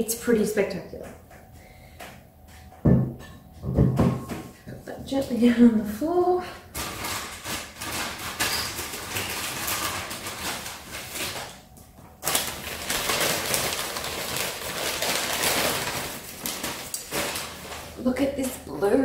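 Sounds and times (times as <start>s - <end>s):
packing wrap crinkling: 6.7s - 18.6s.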